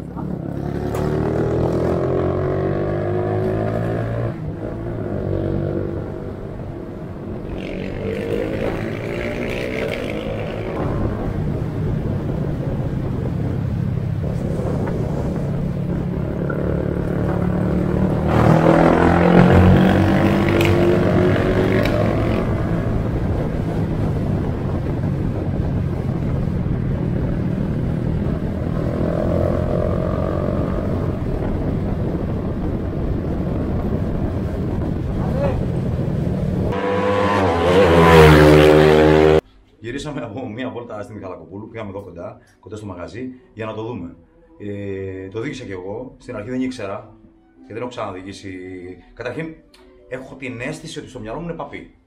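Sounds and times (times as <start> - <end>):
motorcycle engine shifting up: 0.0 - 39.4.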